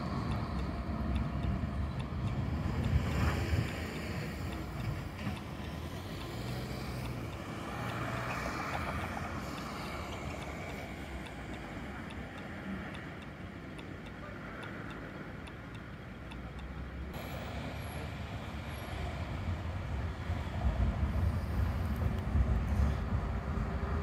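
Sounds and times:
faint ticking: 0.0 - 17.6
street traffic noise: 0.0 - 24.0
tram approaching: 0.0 - 24.0.

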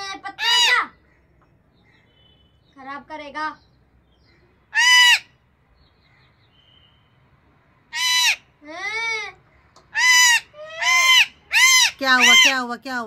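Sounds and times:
parakeet screeching: 0.3 - 1.0, 4.7 - 5.4, 7.9 - 8.5, 9.9 - 12.7.

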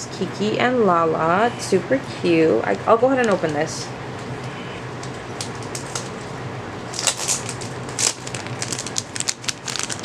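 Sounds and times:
steady low hum: 0.0 - 10.0
plastic bag crinkling: 5.0 - 6.3, 6.9 - 10.0.

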